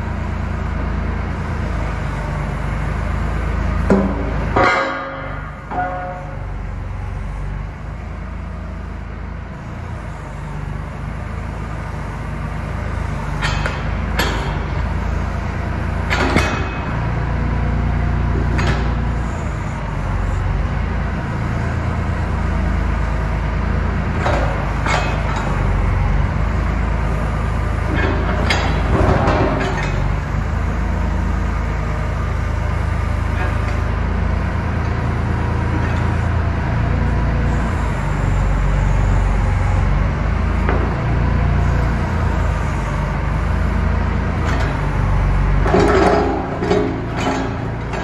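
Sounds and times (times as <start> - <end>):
diesel engine running: 0.0 - 48.0
metal clanks and knocks: 3.8 - 6.6, 13.2 - 14.8, 16.0 - 17.2, 18.4 - 19.1, 24.1 - 25.8, 27.8 - 30.3, 44.4 - 48.0.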